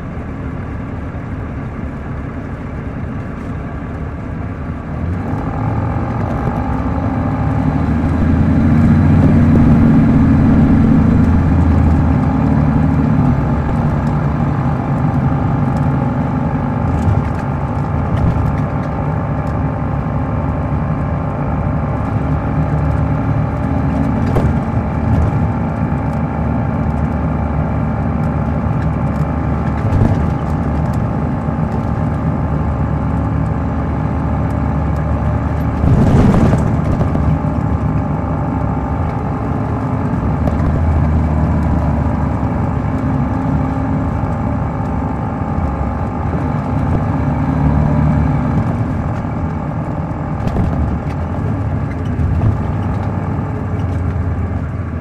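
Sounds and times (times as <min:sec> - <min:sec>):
diesel engine drone: 0:00.0 - 0:55.0
rush of noise: 0:07.1 - 0:14.8, 0:35.6 - 0:37.8.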